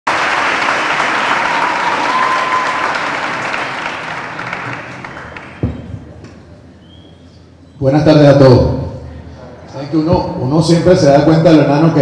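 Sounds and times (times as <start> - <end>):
audience applauding: 0.1 - 5.7.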